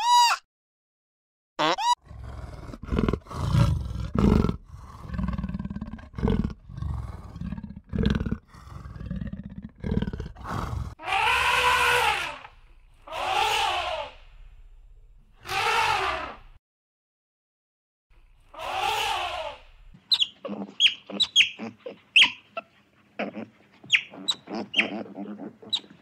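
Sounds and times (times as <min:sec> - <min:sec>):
animal roaring grunts: 0:02.0 - 0:12.4
high animal calls: 0:11.0 - 0:14.3, 0:15.4 - 0:16.5, 0:18.5 - 0:22.5, 0:23.2 - 0:26.0.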